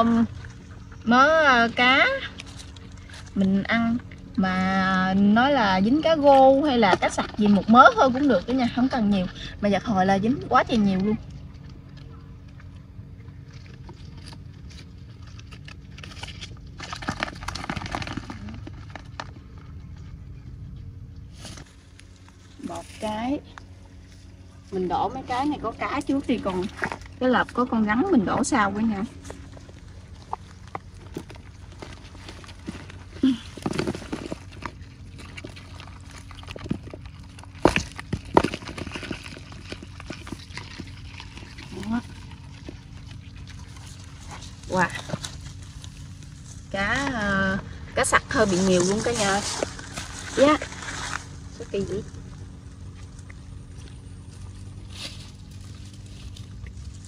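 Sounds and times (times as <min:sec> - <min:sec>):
fish trap being shaken: 0:13.7 - 0:19.7, 0:28.9 - 0:46.8
fish flapping in plastic basin: 0:14.9 - 0:20.0, 0:28.5 - 0:47.0.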